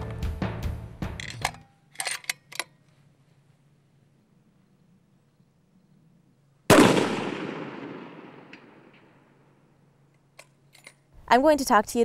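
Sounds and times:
rifle shot with echo: 0:06.7 - 0:09.6.

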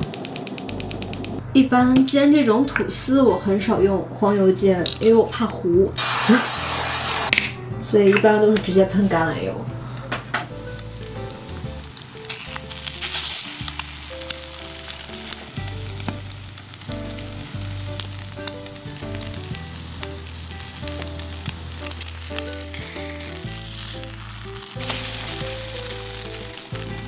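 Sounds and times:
soft background music: 0:00.2 - 0:27.0
toast sizzling in pan: 0:06.0 - 0:07.3, 0:10.5 - 0:27.0.

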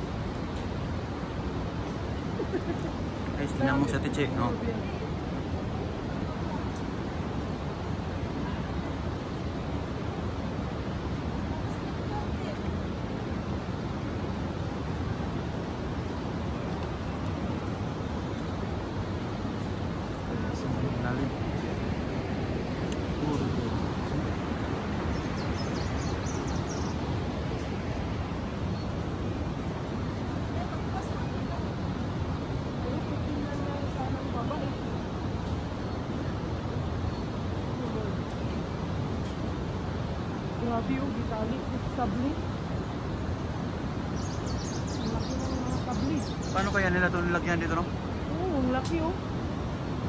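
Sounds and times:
steady rushing outdoor noise: 0:00.0 - 0:50.0
faint high bird chirps: 0:25.0 - 0:27.2, 0:44.0 - 0:46.8.

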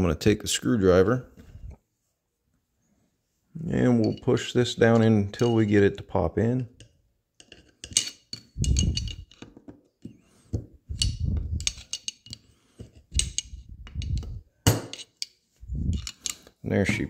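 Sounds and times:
screwdriver clicking and scraping metal: 0:06.8 - 0:09.6, 0:10.9 - 0:16.6.

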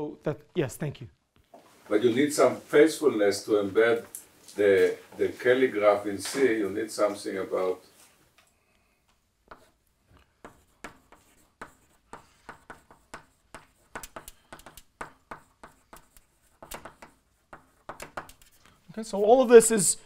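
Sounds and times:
chalk tapping and scratching: 0:09.4 - 0:19.5.

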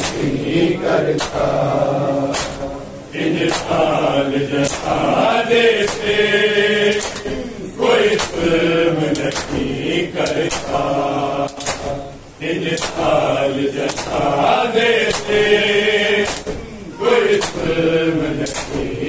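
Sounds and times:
men chanting together: 0:00.0 - 0:19.0
hands slapping bare chests: 0:01.2 - 0:01.5, 0:02.3 - 0:02.6, 0:03.4 - 0:03.8, 0:04.6 - 0:05.0, 0:05.8 - 0:06.1, 0:06.9 - 0:07.4, 0:08.1 - 0:08.5, 0:09.2 - 0:10.8, 0:11.5 - 0:12.0, 0:12.7 - 0:13.1, 0:13.8 - 0:14.3, 0:15.1 - 0:15.5, 0:16.2 - 0:16.7, 0:17.3 - 0:17.7, 0:18.4 - 0:18.9.

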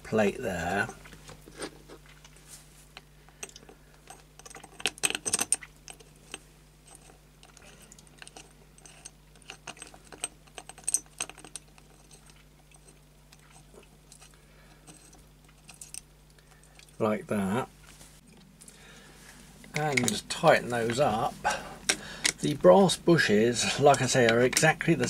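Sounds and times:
small steel parts clinking: 0:03.4 - 0:17.0.

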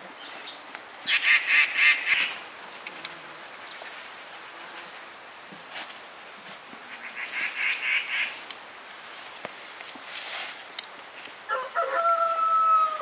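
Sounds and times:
fowl long loud call: 0:11.5 - 0:13.0.

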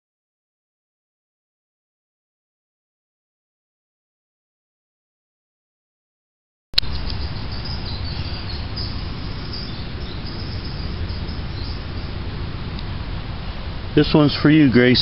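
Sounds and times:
faint high chirps: 0:06.8 - 0:12.2
low rumble on microphone: 0:06.8 - 0:15.0.

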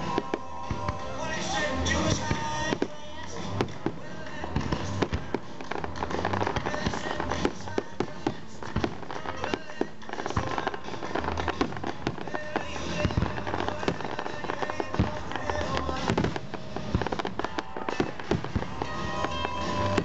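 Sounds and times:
fireworks popping and banging: 0:00.0 - 0:20.0
music: 0:00.0 - 0:20.0.

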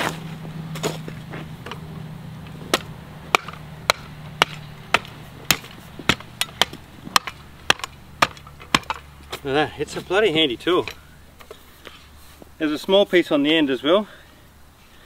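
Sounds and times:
shovel chopping rocky dirt: 0:00.0 - 0:10.2.

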